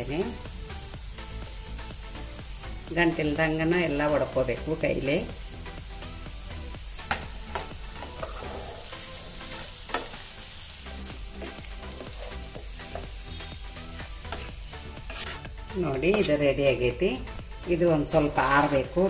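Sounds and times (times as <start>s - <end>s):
light sizzle: 0.0s - 17.4s, 18.0s - 19.0s
spatula stirring in frying pan: 6.9s - 16.4s, 18.1s - 19.0s.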